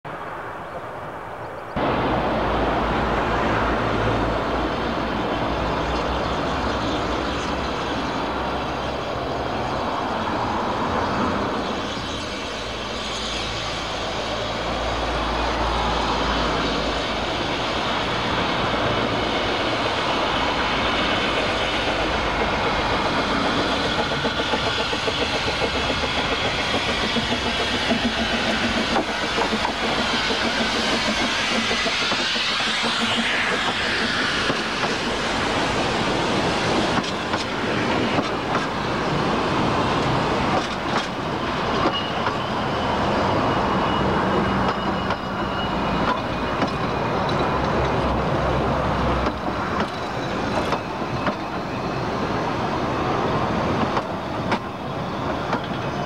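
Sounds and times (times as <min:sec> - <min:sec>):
steam train rumbling: 0:01.7 - 0:56.0
wheels clicking over rail joints: 0:46.0 - 0:51.6.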